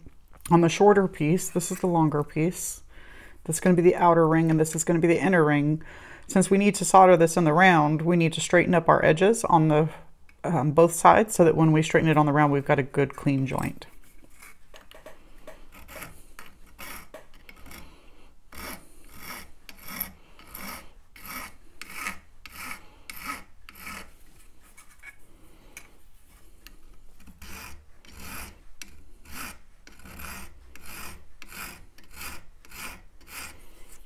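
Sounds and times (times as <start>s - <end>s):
file rasping on copper: 15.7s - 17.9s, 18.5s - 24.1s, 26.6s - 34.0s.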